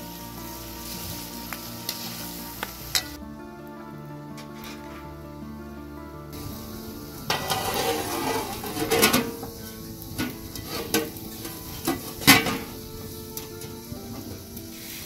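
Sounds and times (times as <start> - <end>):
metal lid clattering on pot: 7.3 - 9.6, 10.2 - 12.8.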